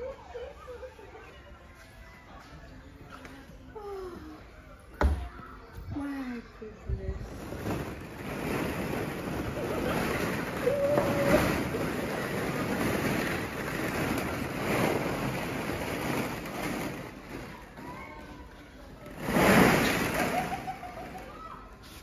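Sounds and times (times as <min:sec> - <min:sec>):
plastic balls rustling and clattering: 0:07.2 - 0:21.8.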